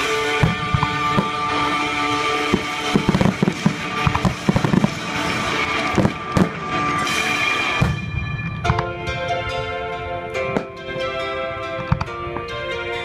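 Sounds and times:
firework bangs: 0:00.0 - 0:09.1.

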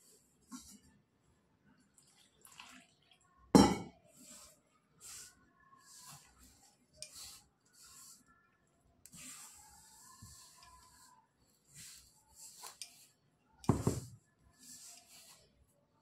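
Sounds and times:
hands kneading wet dough: 0:04.1 - 0:16.0.

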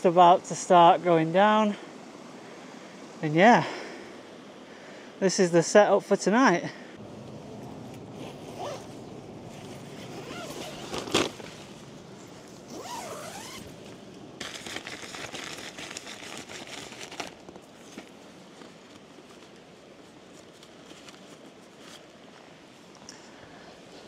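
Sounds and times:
tent door zip rasping: 0:08.1 - 0:11.7, 0:12.7 - 0:13.8.

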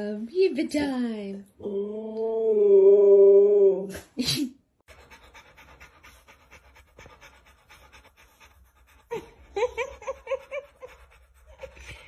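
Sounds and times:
dog panting: 0:04.9 - 0:12.0.

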